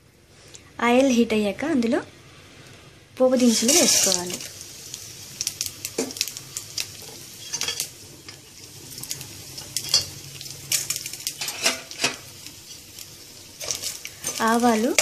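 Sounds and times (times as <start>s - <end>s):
spices sizzling in hot oil: 3.2s - 15.0s.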